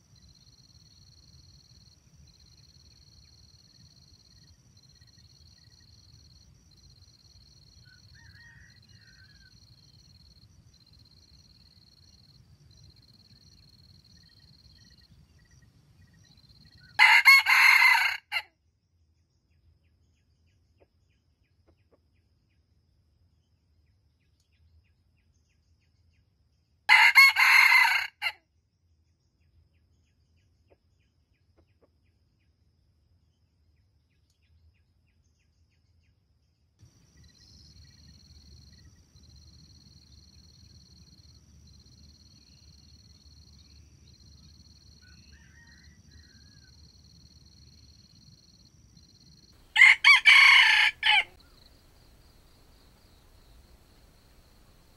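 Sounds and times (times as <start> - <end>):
faint insect chirring: 0.0 - 18.1, 36.8 - 54.9
rooster crowing: 7.8 - 10.0, 16.8 - 18.4, 26.9 - 28.4, 44.9 - 46.9, 49.7 - 54.9.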